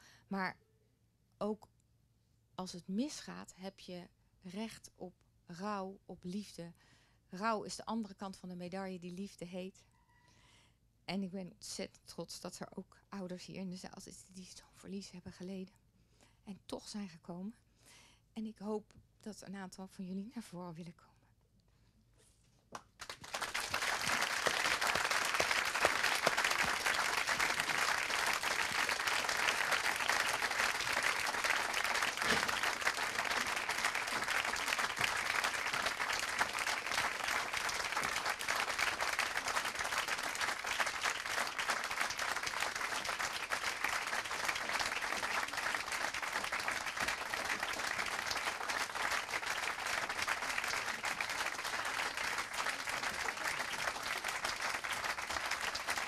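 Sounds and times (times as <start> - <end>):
audience applauding: 23.0 - 56.0.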